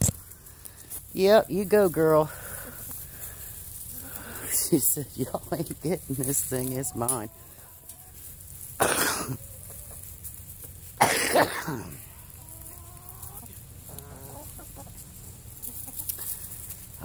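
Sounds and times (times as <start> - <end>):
chickens clucking: 0.0 - 17.0
chicken squawks: 12.0 - 16.3.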